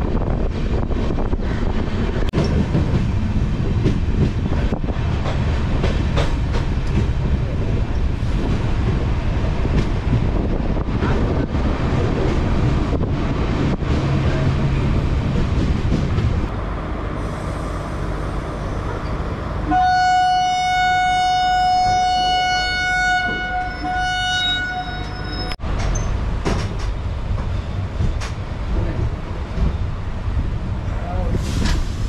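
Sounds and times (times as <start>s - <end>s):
wind on microphone: 0.0s - 16.5s
moving train rumble: 0.0s - 32.0s
train horn blast: 19.6s - 25.6s.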